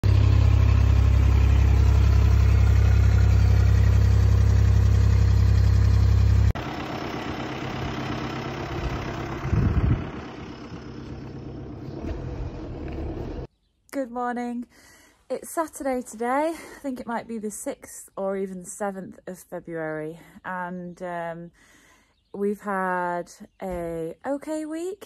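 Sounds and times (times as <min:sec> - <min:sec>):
low rumble: 0:00.0 - 0:13.5
vehicle engine idling: 0:00.0 - 0:13.5.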